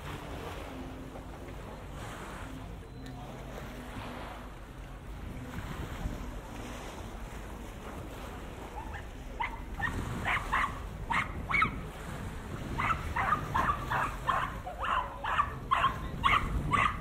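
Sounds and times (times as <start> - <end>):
dog yapping: 8.8 - 11.8, 12.8 - 17.0.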